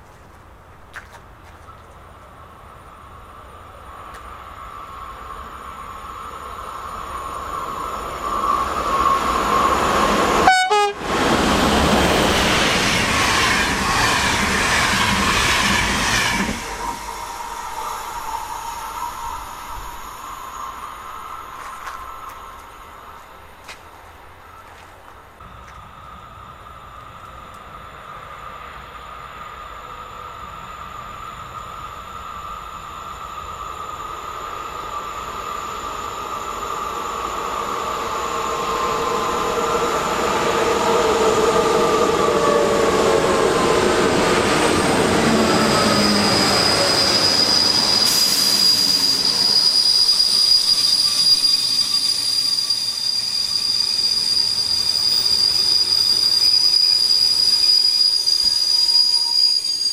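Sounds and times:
train passing: 0.0s - 59.9s
high-pitched squeal: 4.6s - 23.2s, 27.8s - 59.9s
whining tones falling in pitch: 30.8s - 59.9s.

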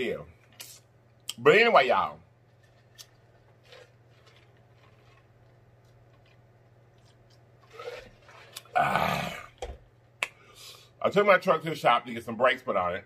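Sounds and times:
mouth clicks and smacks: 10.2s - 10.4s.

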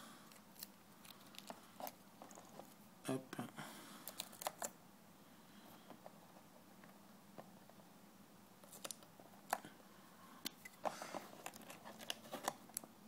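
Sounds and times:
fingers rustling paper: 0.3s - 2.8s, 4.0s - 4.7s, 10.6s - 12.8s.

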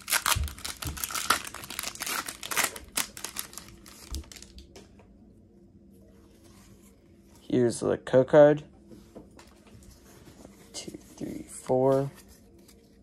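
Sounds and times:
foil wrapper crinkling and tearing: 0.0s - 4.6s.

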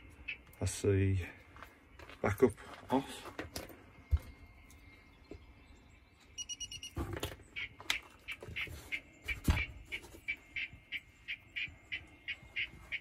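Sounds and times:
high electronic beeps: 6.3s - 7.0s.

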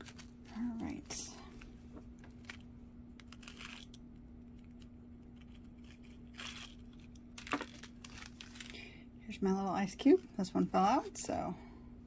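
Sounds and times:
plastic bag crinkling: 0.0s - 4.0s, 5.5s - 9.0s
steady low hum: 0.0s - 12.0s.

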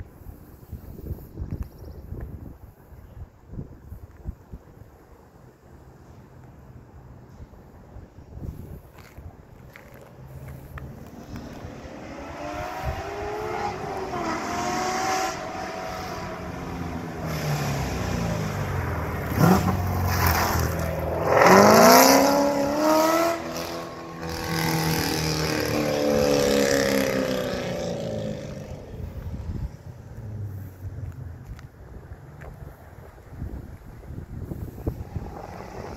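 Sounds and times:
car engine accelerating hard: 11.1s - 29.3s.

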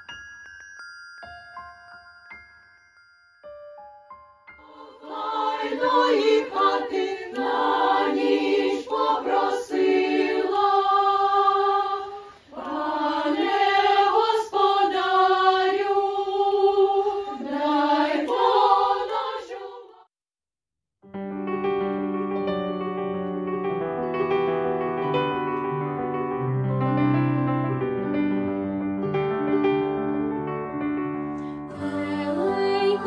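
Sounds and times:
children's choir singing: 4.6s - 20.1s, 31.7s - 33.0s.

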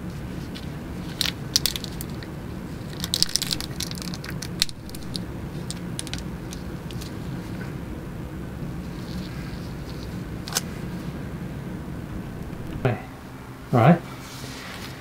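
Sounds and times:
steady low hum: 0.0s - 15.0s
plastic syringe clicks and crinkles: 3.0s - 7.1s.

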